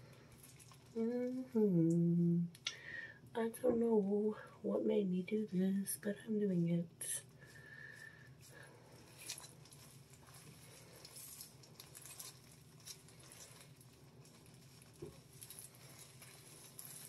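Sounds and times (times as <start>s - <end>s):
low steady hum: 0.0s - 17.0s
rubber gloves rustling: 7.2s - 17.0s.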